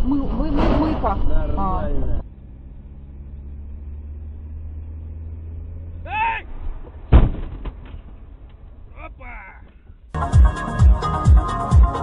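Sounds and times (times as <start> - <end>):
car engine and road rumble: 0.0 - 12.0
car collision bang: 0.4 - 1.5, 6.4 - 8.9
person shouting: 6.1 - 6.5.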